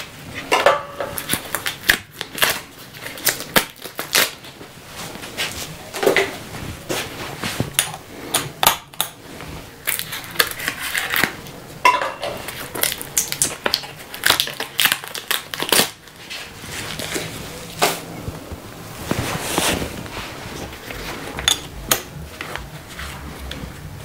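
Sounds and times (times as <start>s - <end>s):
packaging crackling and tearing: 1.1s - 4.6s, 9.8s - 11.6s, 12.4s - 18.0s.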